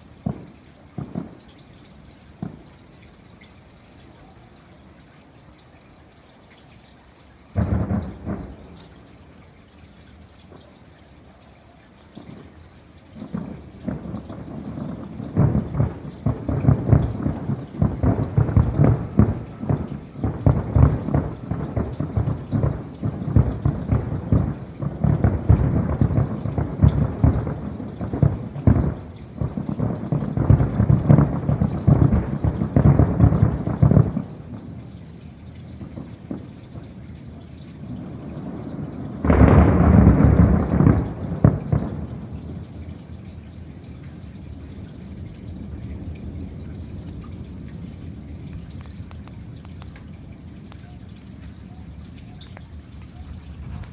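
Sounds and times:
distant fireworks booming: 0.0s - 3.4s, 7.5s - 9.4s, 12.1s - 44.0s, 52.5s - 53.9s.

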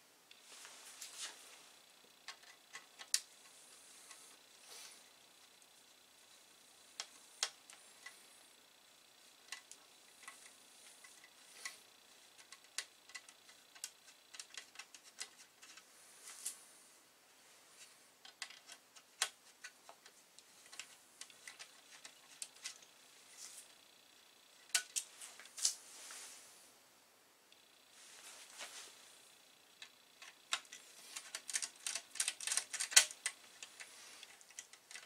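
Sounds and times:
hand tool clicking on screws: 30.2s - 35.0s
loose screws handled: 30.2s - 35.0s.

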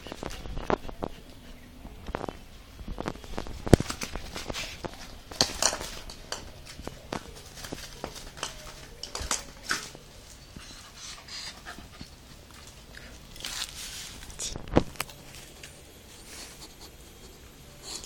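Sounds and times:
plastic rustling: 12.7s - 15.8s.

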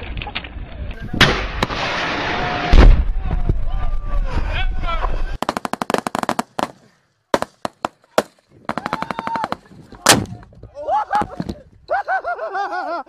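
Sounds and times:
rifle shots: 5.4s - 10.4s.

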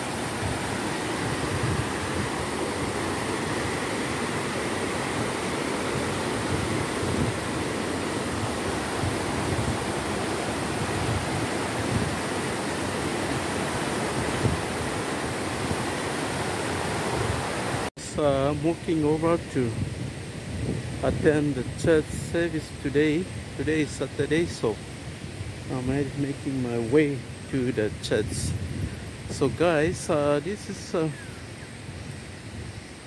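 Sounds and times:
river water over rocks: 0.0s - 17.9s.

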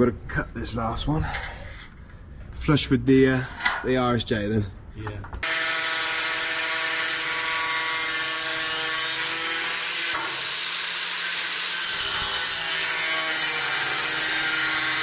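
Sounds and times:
angle grinder cutting metal: 5.4s - 15.0s.

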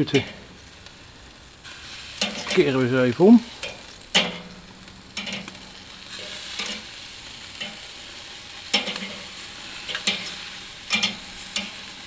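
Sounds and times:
meat sizzling on a grill: 0.0s - 12.0s
metal tongs clinking: 9.9s - 11.8s.

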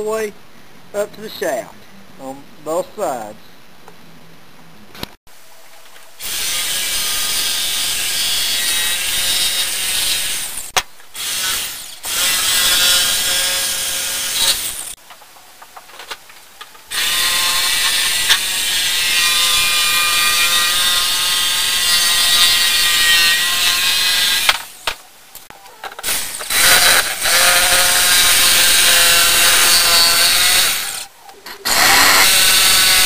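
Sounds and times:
jigsaw cutting wood: 31.6s - 33.0s.

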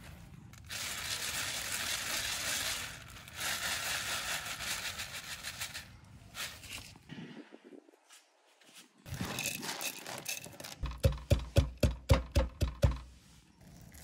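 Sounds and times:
pestle pounding in wooden mortar: 10.8s - 13.0s.

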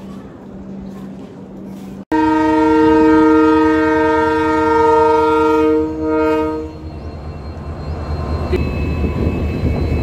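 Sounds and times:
locomotive horn blast: 2.1s - 6.9s.

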